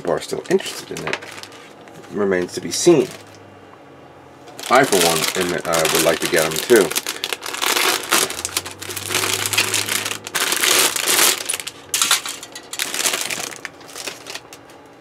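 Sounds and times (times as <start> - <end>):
plastic bag crinkling: 0.2 - 1.7, 2.4 - 3.4, 4.5 - 14.9
plastic sprues clattering: 0.3 - 1.6, 4.5 - 14.8.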